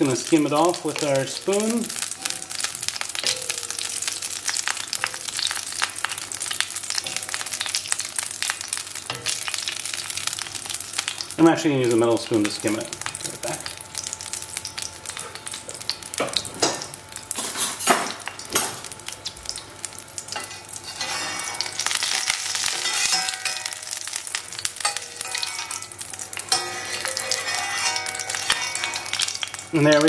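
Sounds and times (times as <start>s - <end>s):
butter sizzling in a pan: 0.0s - 30.0s
metal spoon stirring: 20.3s - 30.0s.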